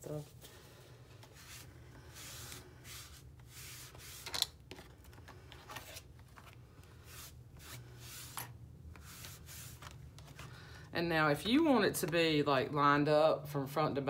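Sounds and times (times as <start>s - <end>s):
paper towel rubbing on fabric: 1.3s - 4.2s.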